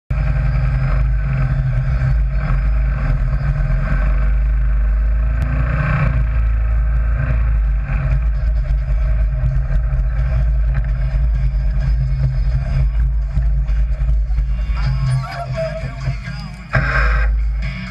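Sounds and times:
dune buggy engine rumbling: 0:00.1 - 0:17.9.

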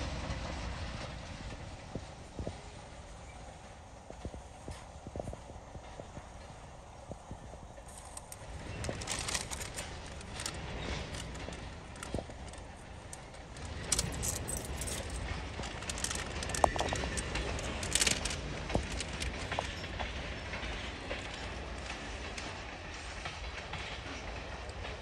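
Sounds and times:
freight cars rumbling: 0:00.0 - 0:25.0.

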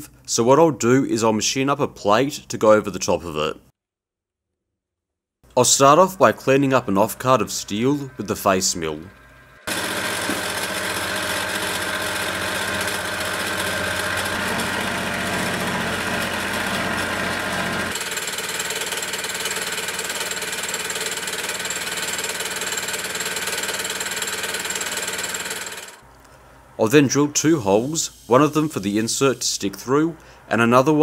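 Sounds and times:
high whine: 0:05.5 - 0:11.4
milling machine cutting steel: 0:09.1 - 0:26.0.

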